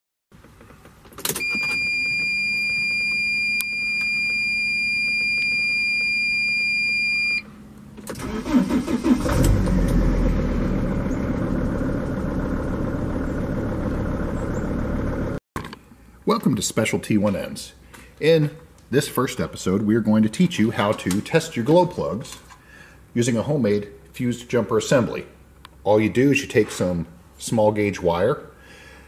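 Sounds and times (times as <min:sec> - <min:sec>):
electronic warning tone: 0:01.4 - 0:07.4
diesel engine cranking: 0:07.9 - 0:15.4
diesel engine idling: 0:08.2 - 0:15.4.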